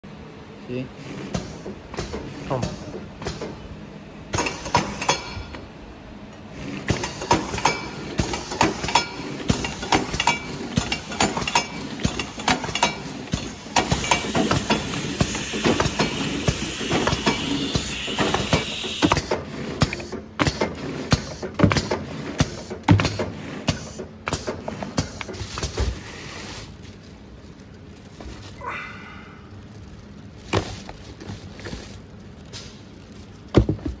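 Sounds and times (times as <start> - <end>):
labeling machine running: 6.4 - 26.6
steady hiss: 13.1 - 19.2
plastic bag rustling: 25.3 - 34.0
plastic bottles knocking together: 33.4 - 34.0.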